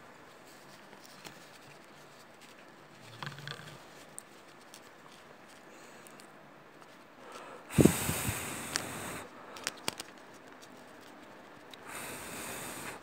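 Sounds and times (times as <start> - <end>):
breath blown onto vinyl record: 7.7 - 9.4, 11.8 - 13.0.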